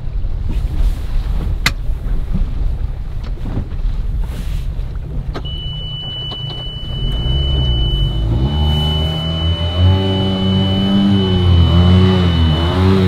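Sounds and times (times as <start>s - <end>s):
wind and water rumble: 0.0s - 13.0s
boat engine humming: 0.1s - 13.0s
high-pitched electronic tone: 5.5s - 13.0s.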